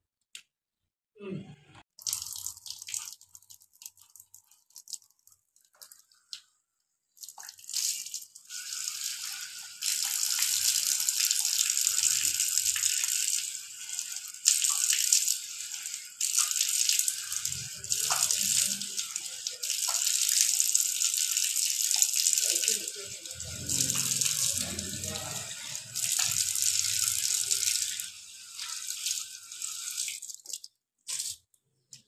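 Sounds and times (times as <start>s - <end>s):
tap water running: 2.0s - 6.5s, 7.2s - 32.0s
dripping water: 2.0s - 6.6s, 7.2s - 32.0s
water splashing onto concrete: 16.2s - 20.8s, 21.9s - 29.2s.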